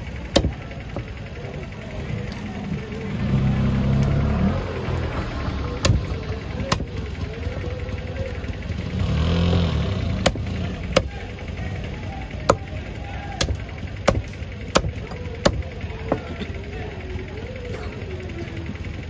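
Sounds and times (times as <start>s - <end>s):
cleaver chopping fish on wood: 0.3s - 0.6s, 6.7s - 6.9s, 10.2s - 11.2s, 13.4s - 15.6s.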